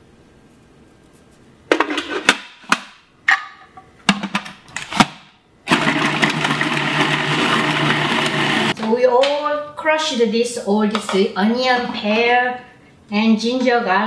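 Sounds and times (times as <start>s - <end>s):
food processor motor chopping: 5.7s - 8.8s.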